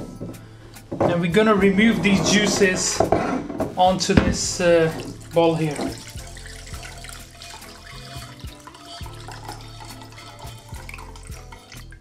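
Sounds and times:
background music: 0.0 - 12.0
liquid trickling through sieve: 4.7 - 12.0.

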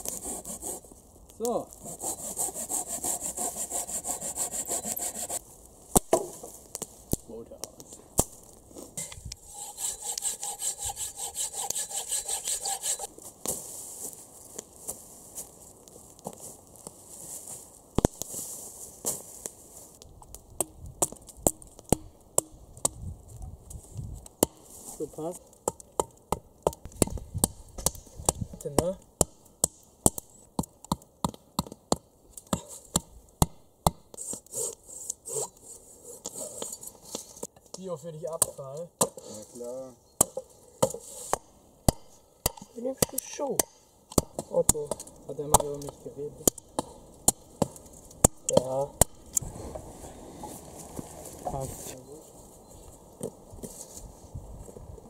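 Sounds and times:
hand saw cutting wooden pole: 0.0 - 0.8, 1.8 - 5.4, 9.4 - 13.1, 34.2 - 36.8
hatchet striking wooden stake: 2.0 - 6.9, 9.0 - 13.1, 20.6 - 23.0, 25.6 - 34.4, 40.2 - 49.4.

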